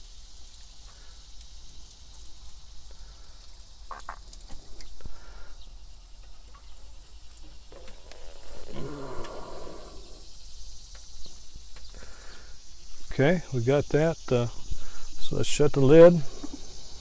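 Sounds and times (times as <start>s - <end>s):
light clicks on grill grate: 0.0s - 8.3s
faint high hiss: 0.0s - 17.0s.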